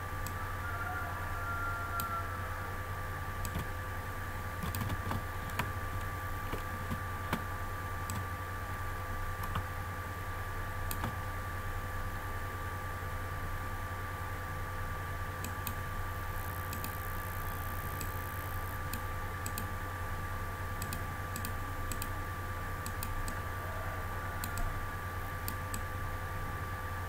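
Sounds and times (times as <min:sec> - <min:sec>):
low electrical hum and hiss: 0:00.0 - 0:27.0
computer mouse clicks: 0:03.4 - 0:03.7, 0:04.6 - 0:07.5, 0:08.1 - 0:08.3, 0:09.4 - 0:09.7, 0:10.9 - 0:11.2, 0:15.4 - 0:15.8, 0:16.6 - 0:17.0, 0:17.9 - 0:18.2, 0:18.9 - 0:19.7, 0:20.8 - 0:22.2, 0:22.8 - 0:23.4, 0:25.4 - 0:25.9.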